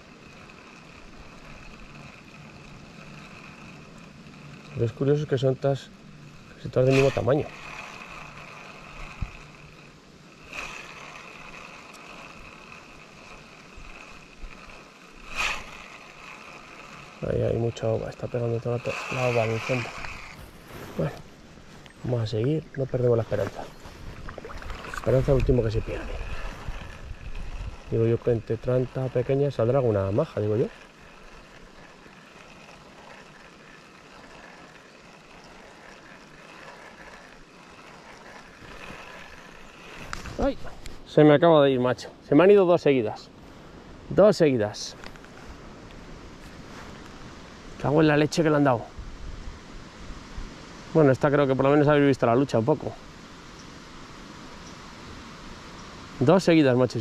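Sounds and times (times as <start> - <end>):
river water running: 0.0 - 57.0
river water rushing: 23.7 - 27.8.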